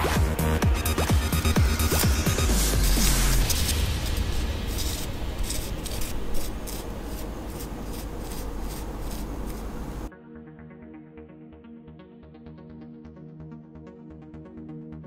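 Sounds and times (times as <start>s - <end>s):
quiet music: 0.0s - 15.0s
soft brush sweeping: 1.9s - 10.1s.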